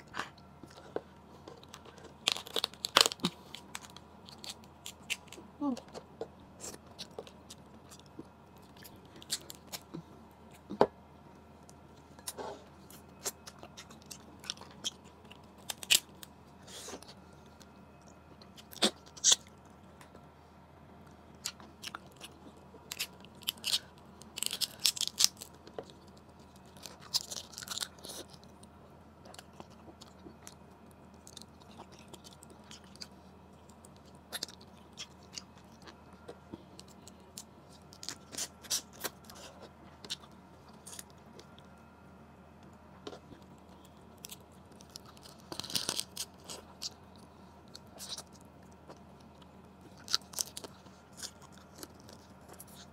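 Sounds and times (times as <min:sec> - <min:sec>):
chewing crab meat: 0:00.0 - 0:10.9, 0:11.6 - 0:20.4, 0:21.0 - 0:52.9
crab shell cracking by hand: 0:22.9 - 0:25.6.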